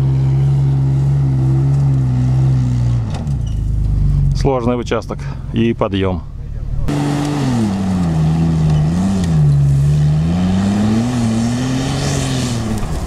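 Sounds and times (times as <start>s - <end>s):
engine straining at full throttle: 0.0s - 13.0s
tyres churning sand: 6.9s - 13.0s.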